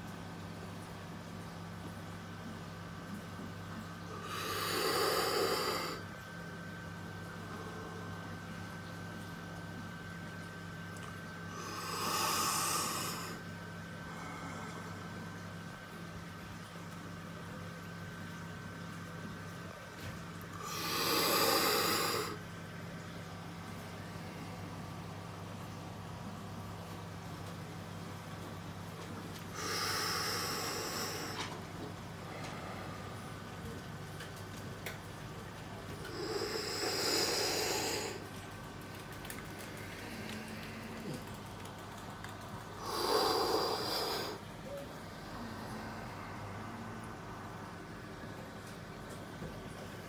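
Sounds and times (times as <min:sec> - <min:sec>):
aquarium equipment hum: 0:00.0 - 0:50.0
breathy exhale: 0:11.5 - 0:15.2, 0:29.5 - 0:31.6, 0:36.0 - 0:38.2, 0:42.8 - 0:44.4.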